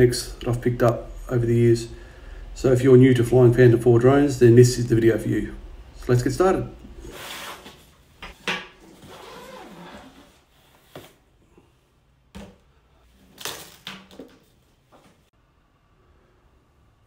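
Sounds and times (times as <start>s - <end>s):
backpack fabric rustling: 8.8s - 11.2s.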